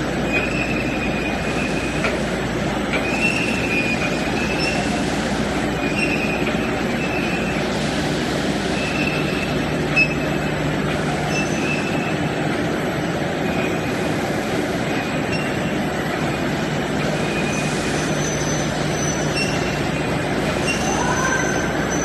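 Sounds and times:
factory machinery running: 0:00.0 - 0:22.0
high machine squeaks: 0:00.1 - 0:02.2, 0:02.9 - 0:07.8, 0:08.7 - 0:10.6, 0:11.2 - 0:12.4, 0:14.9 - 0:22.0.

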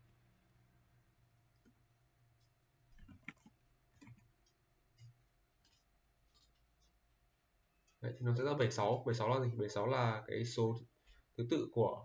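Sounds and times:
computer keyboard and mouse clicks: 0:02.4 - 0:06.9.

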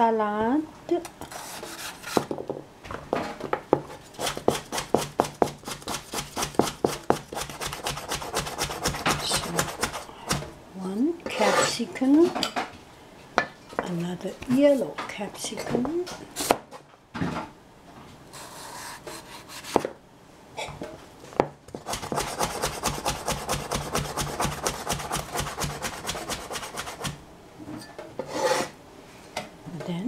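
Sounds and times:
knife scraping a board: 0:01.3 - 0:02.3, 0:04.2 - 0:10.4, 0:11.3 - 0:11.8, 0:18.3 - 0:19.8, 0:21.8 - 0:27.2, 0:28.2 - 0:28.8.

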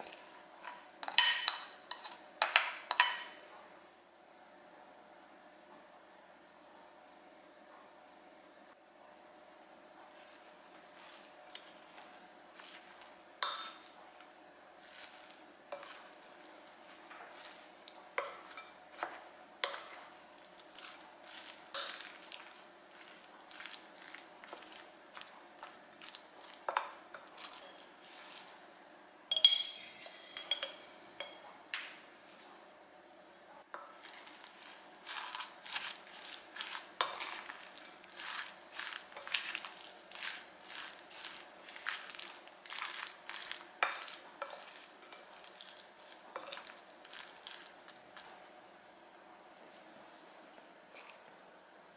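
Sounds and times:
wet stirring in a bowl: 0:10.0 - 0:28.6, 0:33.7 - 0:48.6
utensil clinking against glass: 0:29.3 - 0:31.4.

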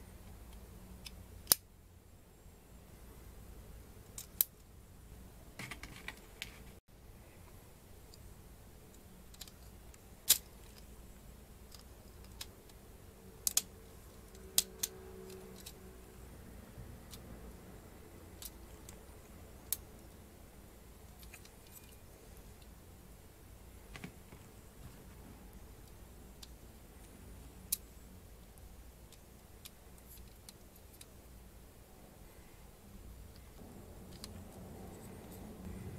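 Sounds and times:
plastic parts clicking and snapping: 0:00.5 - 0:01.6, 0:09.3 - 0:10.9, 0:11.7 - 0:12.8, 0:13.4 - 0:15.8, 0:18.4 - 0:19.0
plastic parts clicking: 0:11.7 - 0:12.8.

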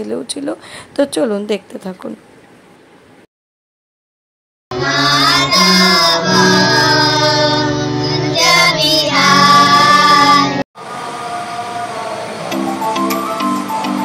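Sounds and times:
children singing: 0:04.7 - 0:13.4.

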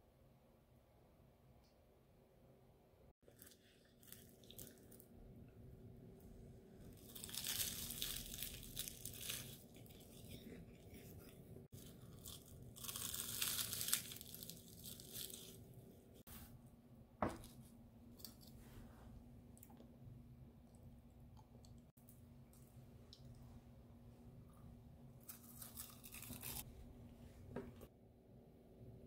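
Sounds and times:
pastry crackling and crunching: 0:06.8 - 0:16.2, 0:25.2 - 0:26.7.

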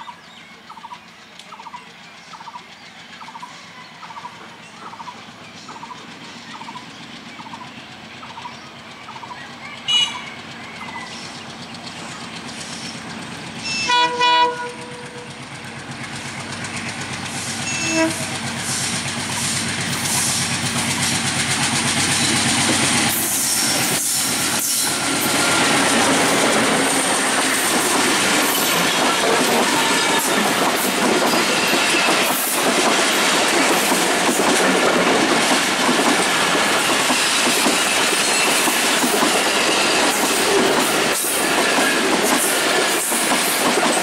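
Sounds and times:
diesel locomotive engine: 0:00.0 - 0:44.0
train wheels clacking on rail joints: 0:00.7 - 0:44.0
locomotive horn blasts: 0:09.9 - 0:10.4, 0:13.6 - 0:15.4, 0:17.6 - 0:18.4, 0:29.5 - 0:30.5.

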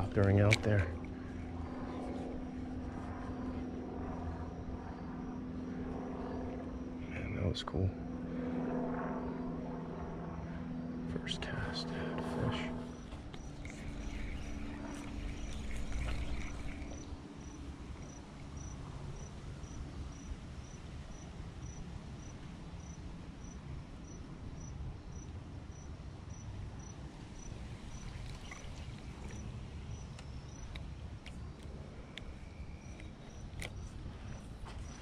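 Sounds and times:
cricket chirping: 0:01.0 - 0:07.5, 0:12.4 - 0:35.0
low background rumble: 0:08.1 - 0:24.2.

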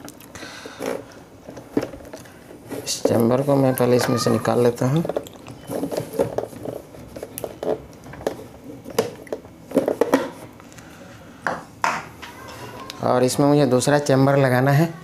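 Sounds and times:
plastic scrape: 0:05.0 - 0:10.5.

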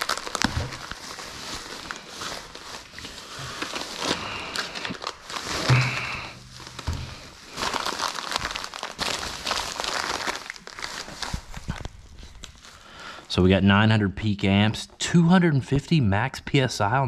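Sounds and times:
bubble wrap crinkling: 0:00.0 - 0:12.9.

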